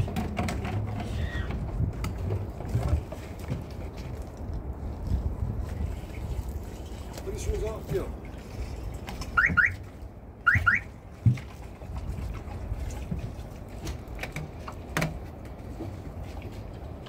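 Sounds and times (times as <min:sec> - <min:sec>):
plastic jerrycans clicking: 0:00.0 - 0:03.9.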